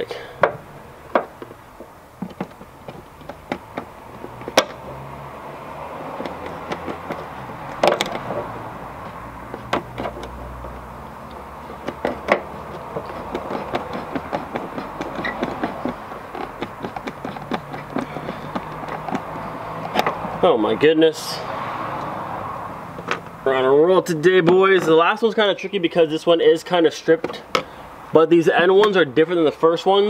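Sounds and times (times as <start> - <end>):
screwdrivers clicking on plastic: 6.1 - 8.4, 11.2 - 20.2.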